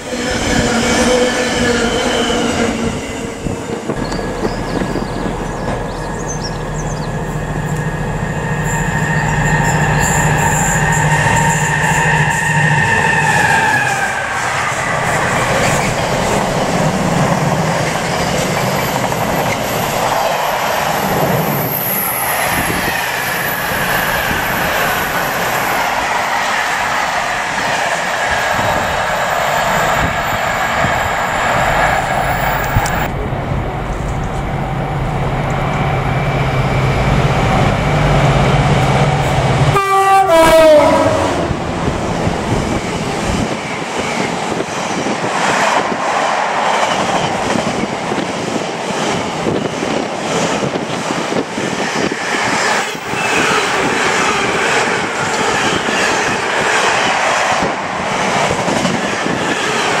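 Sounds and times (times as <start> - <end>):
locomotive engine hum: 3.7 - 11.8, 31.7 - 43.6
train horn: 38.9 - 41.7.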